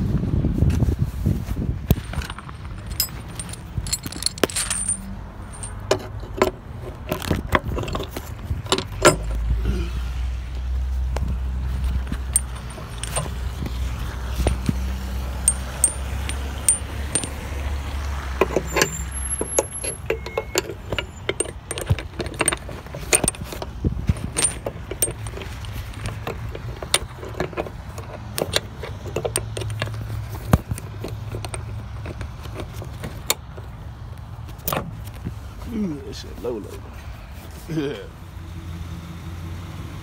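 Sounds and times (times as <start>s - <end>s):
metal tools clinking and rattling: 1.9s - 9.5s, 11.8s - 33.8s.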